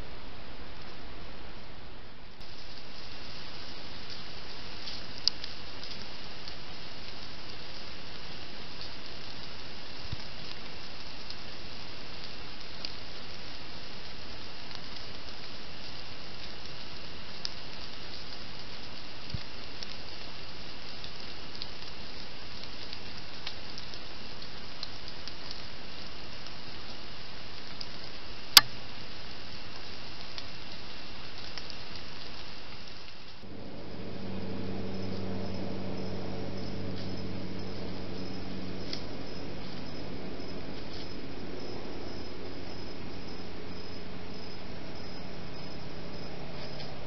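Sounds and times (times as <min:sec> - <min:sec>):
steady hiss: 0:00.0 - 0:47.0
faint ticks: 0:04.0 - 0:28.8, 0:29.7 - 0:33.4, 0:35.1 - 0:40.0
night insects chirping: 0:30.9 - 0:47.0.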